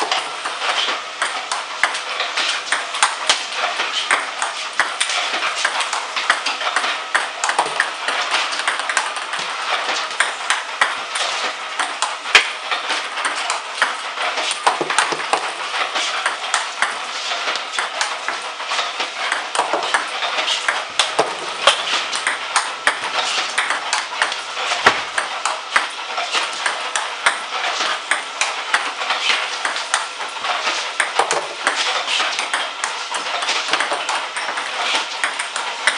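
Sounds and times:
table tennis balls clicking: 0:01.2 - 0:35.9.

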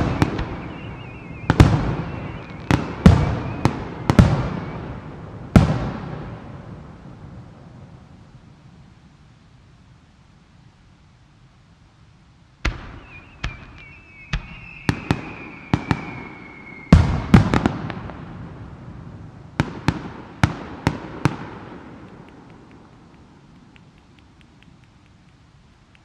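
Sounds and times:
descending firework whistle: 0:00.0 - 0:06.2, 0:12.6 - 0:18.2
firework bangs with echo: 0:00.0 - 0:06.6, 0:12.6 - 0:18.5.

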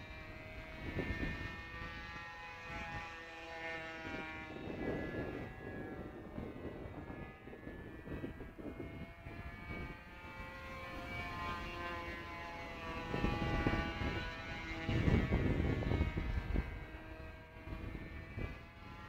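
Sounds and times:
model airplane engine buzzing: 0:00.0 - 0:19.0
wind rumbling on microphone: 0:00.0 - 0:19.0.

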